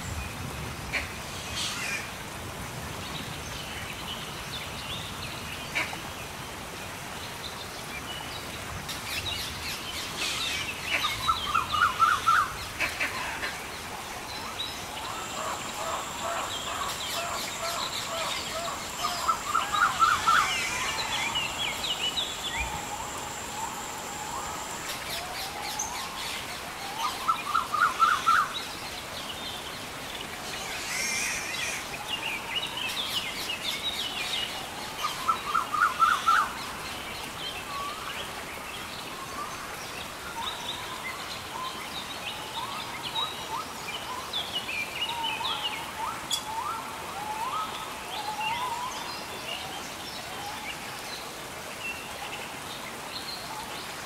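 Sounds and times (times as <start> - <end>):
rain hiss: 0.0 - 54.0
birds calling: 10.0 - 26.3.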